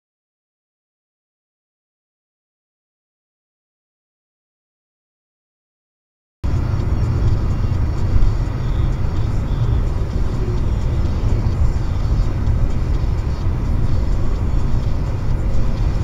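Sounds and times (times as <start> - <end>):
car interior road rumble: 6.4 - 16.0.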